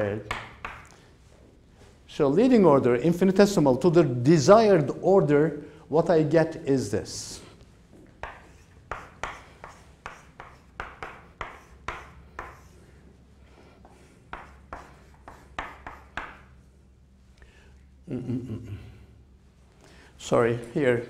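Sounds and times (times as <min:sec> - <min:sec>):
chalk writing on chalkboard: 0:00.2 - 0:01.0, 0:08.2 - 0:13.0, 0:13.8 - 0:16.6.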